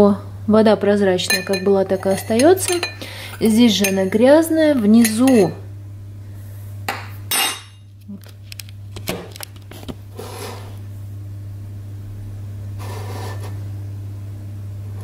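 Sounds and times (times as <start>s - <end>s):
low electrical hum: 0.0s - 15.0s
glass clink: 1.3s - 4.1s, 5.0s - 5.6s, 6.9s - 7.8s.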